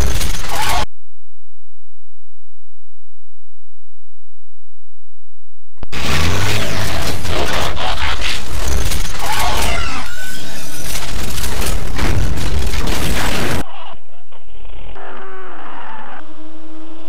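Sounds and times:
mechanical clanks clicks and whirring: 6.1s - 13.6s.

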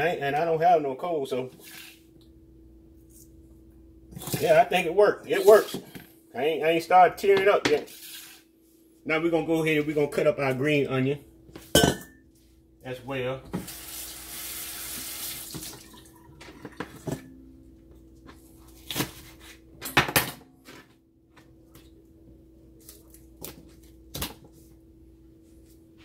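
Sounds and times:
faint steady hum: 0.0s - 26.0s
faucet running water: 13.6s - 16.9s.

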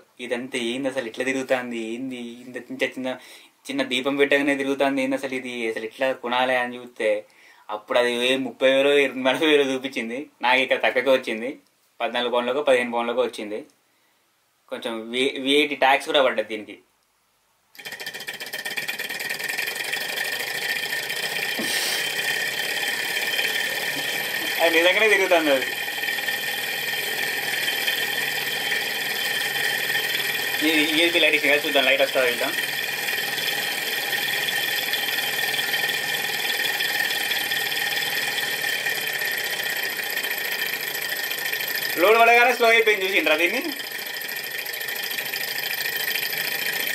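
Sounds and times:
high whine: 17.8s - 46.9s
small engine mechanical clatter: 17.8s - 46.9s.

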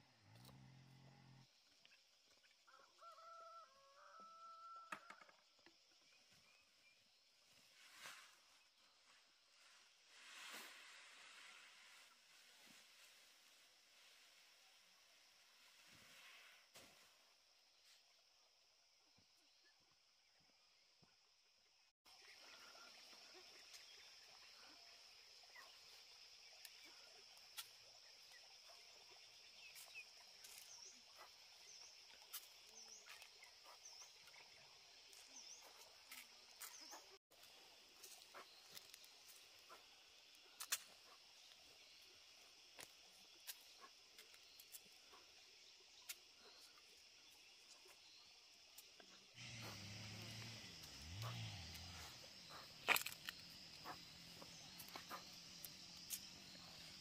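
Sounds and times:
insects chirring: 22.1s - 57.0s.

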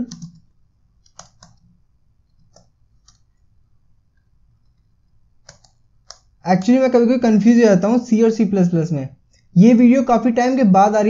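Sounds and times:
faint keyboard keystrokes: 0.0s - 1.7s, 2.3s - 3.3s, 4.6s - 6.8s.

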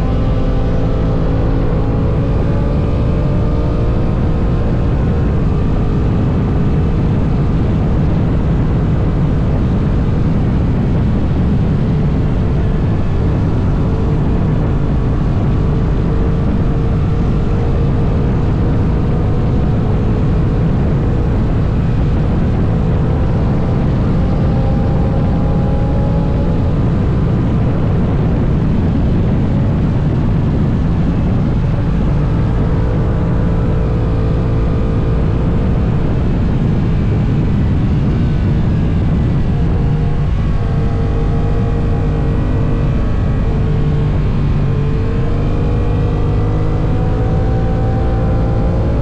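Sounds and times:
wind rush on microphone: 0.0s - 49.0s.

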